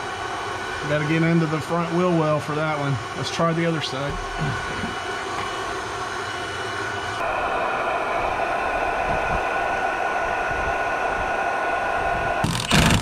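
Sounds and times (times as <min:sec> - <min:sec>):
induction heater fan whirring: 0:00.0 - 0:13.0
impact wrench hammering: 0:04.1 - 0:04.9.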